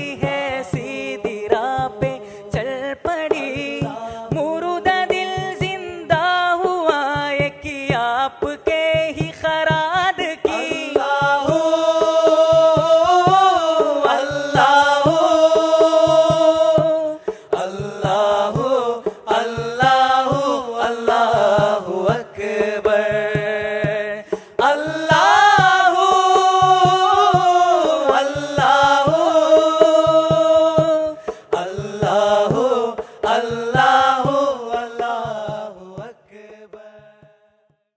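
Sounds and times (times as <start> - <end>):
person singing devotional song: 0.0 - 37.6
steady beat: 9.4 - 37.4.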